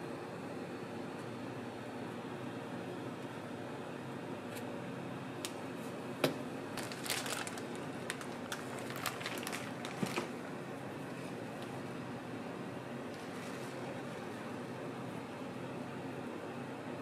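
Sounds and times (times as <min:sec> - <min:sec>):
background hum: 0:00.0 - 0:17.0
plastic bag crinkling: 0:06.7 - 0:10.4, 0:13.1 - 0:14.2.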